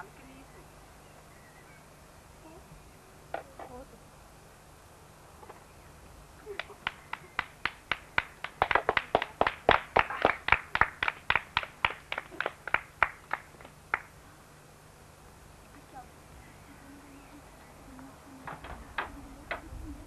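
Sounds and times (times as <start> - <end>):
people clapping: 6.5 - 14.2.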